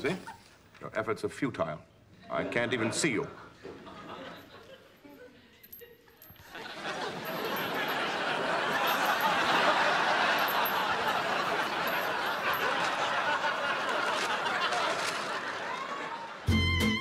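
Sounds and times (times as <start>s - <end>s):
audience laughing: 2.2s - 5.4s, 6.4s - 16.5s.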